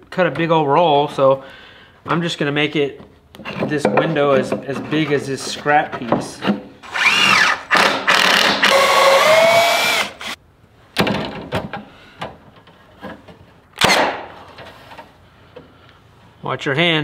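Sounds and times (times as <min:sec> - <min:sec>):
cordless drill running: 0:06.9 - 0:10.4.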